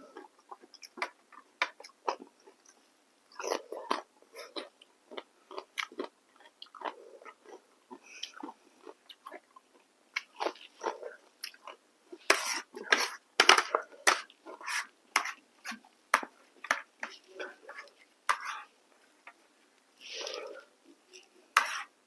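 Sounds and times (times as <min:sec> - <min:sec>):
person chewing: 0:00.1 - 0:18.7
metal spoon scraping plate: 0:12.3 - 0:15.4, 0:21.6 - 0:21.9.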